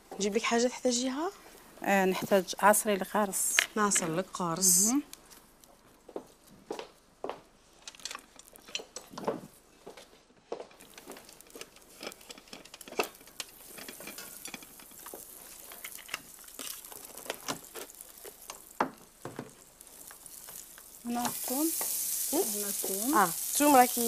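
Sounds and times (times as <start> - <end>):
margarine sizzling in a pot: 10.8 - 24.0
spoon scraping and clicking: 10.9 - 18.6.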